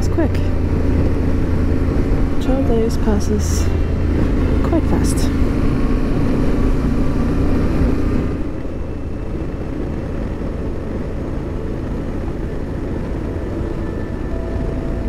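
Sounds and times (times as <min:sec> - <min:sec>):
motorcycle engine drone: 0:00.0 - 0:15.0
wind rush: 0:00.0 - 0:15.0.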